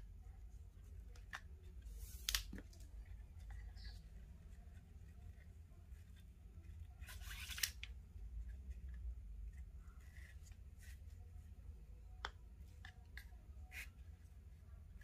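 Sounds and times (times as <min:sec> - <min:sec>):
cord rasping through knot: 0:00.0 - 0:11.6.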